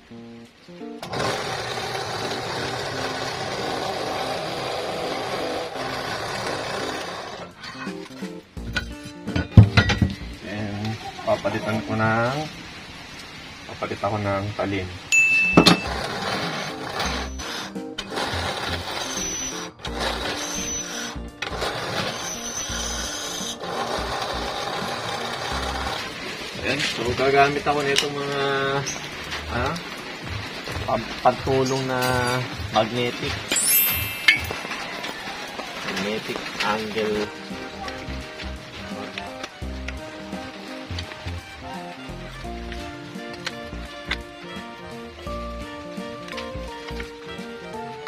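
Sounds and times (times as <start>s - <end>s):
background music: 0.0s - 10.8s, 15.2s - 35.1s, 35.8s - 48.0s
drill press drilling steel: 1.0s - 7.5s, 15.4s - 26.2s.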